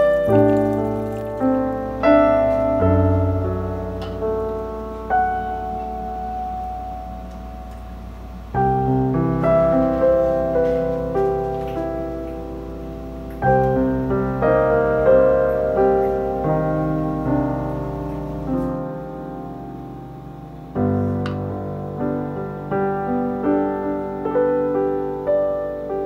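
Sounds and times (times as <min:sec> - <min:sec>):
gentle piano melody: 0:00.0 - 0:26.0.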